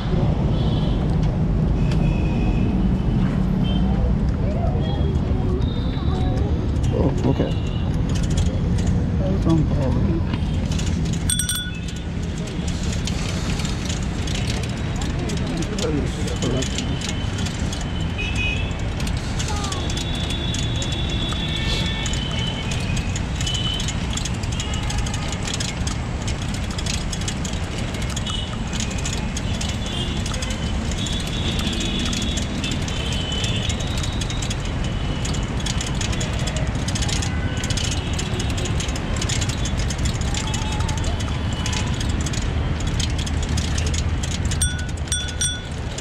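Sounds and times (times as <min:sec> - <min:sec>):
wind and road rumble: 0:00.0 - 0:46.0
light rattling clicks: 0:06.3 - 0:46.0
bicycle bell ringing: 0:11.3 - 0:12.2, 0:44.5 - 0:46.0.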